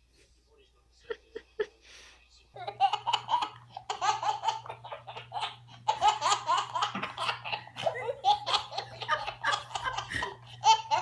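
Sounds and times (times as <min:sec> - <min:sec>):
toddler giggling: 0:02.6 - 0:11.0.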